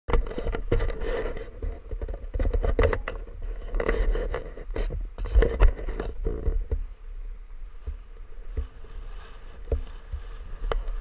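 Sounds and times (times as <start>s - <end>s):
wind rumbling on microphone: 0.1s - 11.0s
edges scraping over snow: 7.7s - 11.0s.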